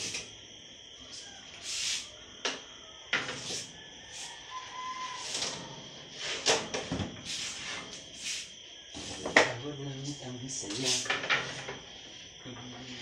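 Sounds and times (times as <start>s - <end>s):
crickets chirping: 0.0s - 13.0s
metal pans scraping and clanking: 9.0s - 9.6s, 10.7s - 11.8s.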